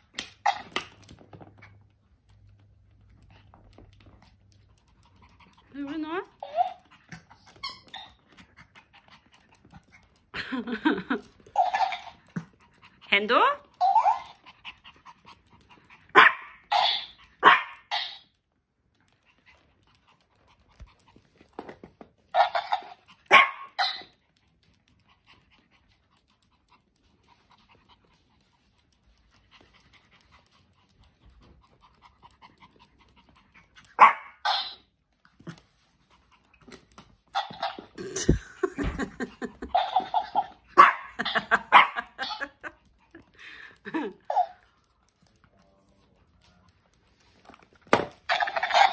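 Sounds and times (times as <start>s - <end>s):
small dog barking: 16.1s - 18.1s, 22.4s - 24.1s, 34.0s - 34.8s, 39.8s - 42.4s.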